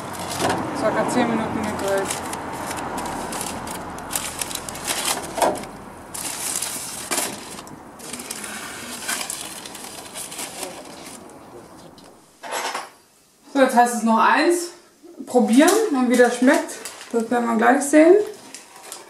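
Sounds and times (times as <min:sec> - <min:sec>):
paper parcels crinkling: 0:00.0 - 0:12.0, 0:16.2 - 0:19.0.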